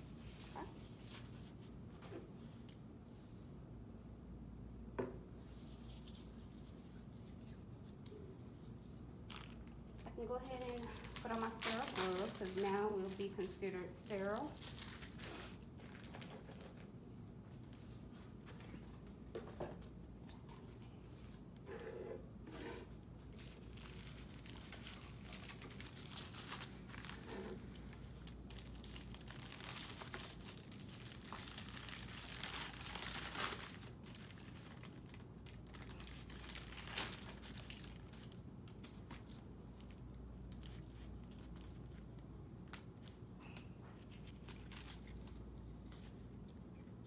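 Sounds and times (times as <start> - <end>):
paper wrapper crinkling: 8.6 - 16.9, 23.2 - 46.2.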